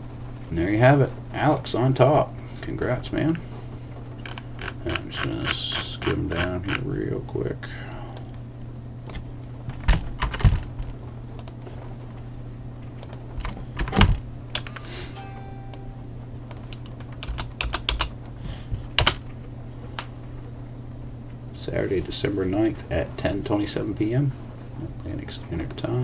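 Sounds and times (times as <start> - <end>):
steady low hum: 0.0 - 26.0
computer keyboard key presses: 9.8 - 10.7, 16.5 - 18.1.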